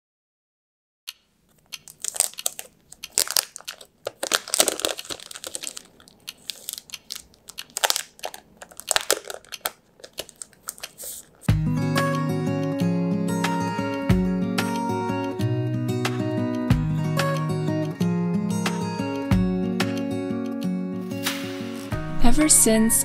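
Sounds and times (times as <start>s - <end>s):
plastic packaging crinkling: 1.5s - 11.5s.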